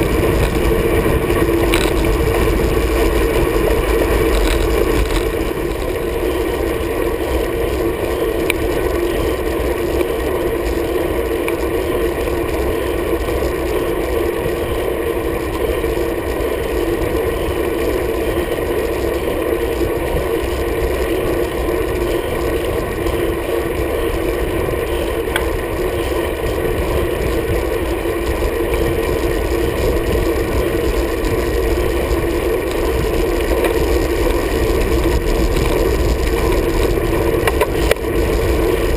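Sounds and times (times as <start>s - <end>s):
wind rush: 0.0s - 9.7s, 22.6s - 38.9s
bike tyre noise: 0.0s - 38.9s.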